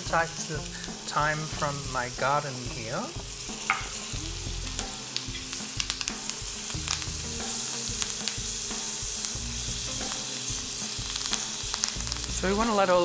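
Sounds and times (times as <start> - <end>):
steak sizzling in oil and butter: 0.0 - 13.0.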